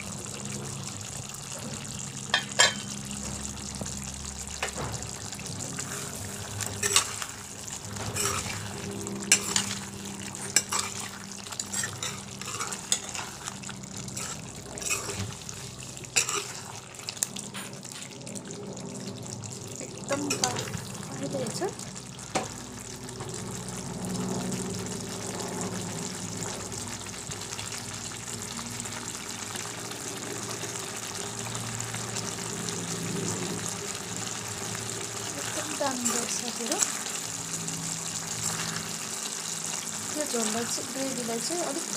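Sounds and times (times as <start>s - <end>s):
steady low hum: 0.0s - 29.0s
curry bubbling and sizzling: 0.0s - 41.9s
metal spoon scraping pan: 5.8s - 7.3s, 8.0s - 15.4s, 16.2s - 16.6s.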